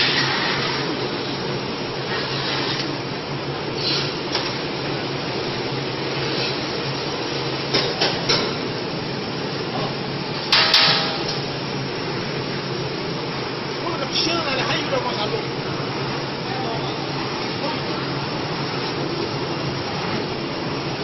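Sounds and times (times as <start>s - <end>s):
machinery humming: 0.0s - 21.0s
sharp metallic knocks: 10.5s - 11.4s.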